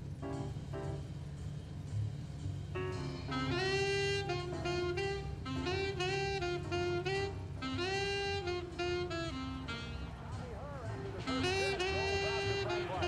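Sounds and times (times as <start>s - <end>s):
low steady hum: 0.0s - 13.0s
jazz saxophone melody: 2.8s - 13.0s.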